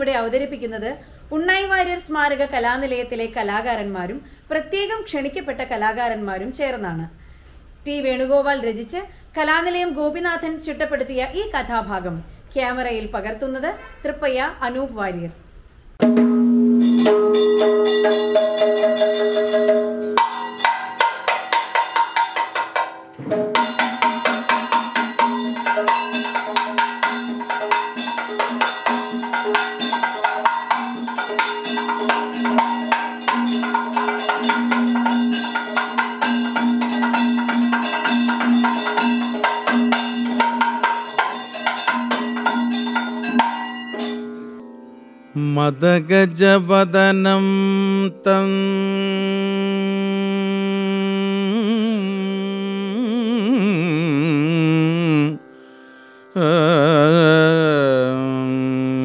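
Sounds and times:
small cymbals: 15.6s - 45.6s
drums playing fast rhythm: 16.0s - 44.2s.

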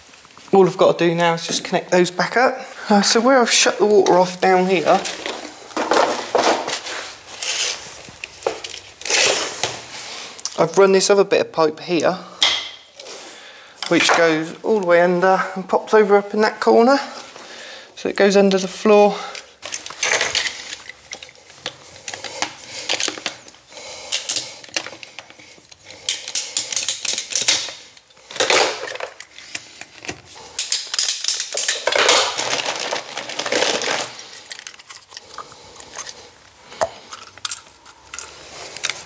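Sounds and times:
plumbing fittings and tools clattering: 18.4s - 39.0s.

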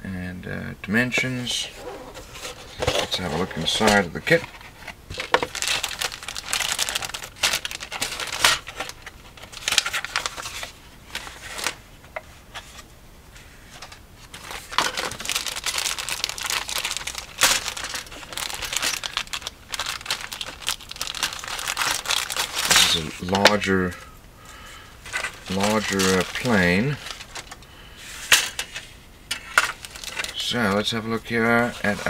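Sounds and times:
plastic bag crinkling: 1.6s - 11.8s, 14.2s - 27.7s, 29.3s - 30.9s
scissors cutting plastic bag: 14.8s - 23.7s, 25.2s - 27.6s.

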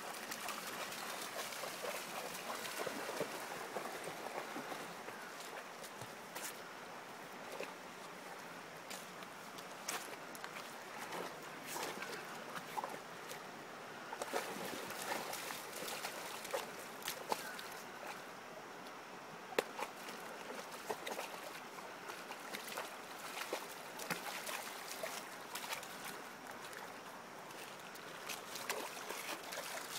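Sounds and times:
dog splashing in water: 19.7s - 26.1s, 28.3s - 29.9s.

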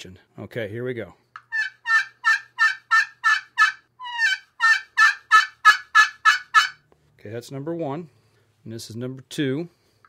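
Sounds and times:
turkey call yelps: 1.4s - 6.8s.

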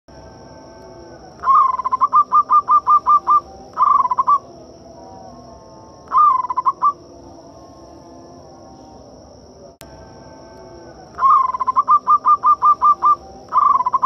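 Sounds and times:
dove cooing: 0.9s - 5.3s, 6.1s - 7.0s, 11.0s - 14.0s.

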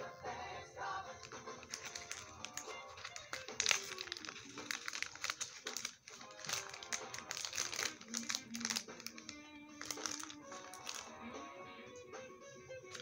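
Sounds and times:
background music: 0.0s - 13.0s
packaging crinkling: 1.1s - 11.2s.

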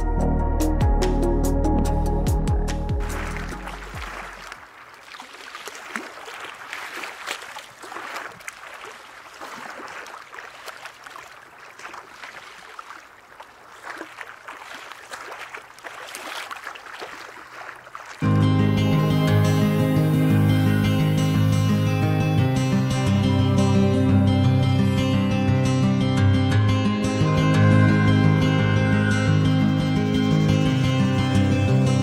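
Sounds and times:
music: 0.0s - 4.4s, 18.2s - 32.0s
water splashes and trickles: 2.9s - 18.3s
sea water lapping and sloshing: 3.0s - 18.2s.

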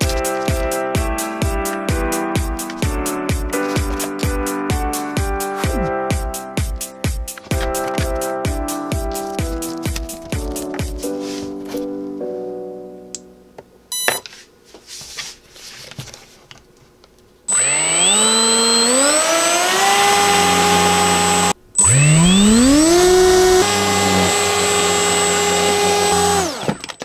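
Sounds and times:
electric motor whine: 17.5s - 26.8s.

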